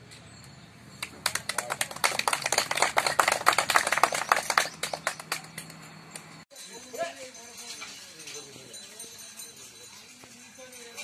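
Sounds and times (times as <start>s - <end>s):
people clapping: 1.0s - 6.3s.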